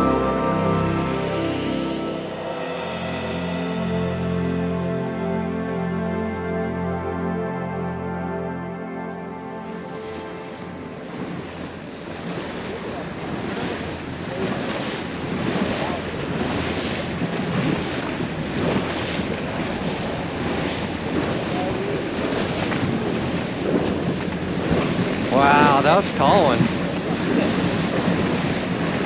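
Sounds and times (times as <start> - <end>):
waves splashing against boat hull: 10.0 - 29.0
wind buffeting microphone: 11.1 - 25.8, 26.5 - 29.0.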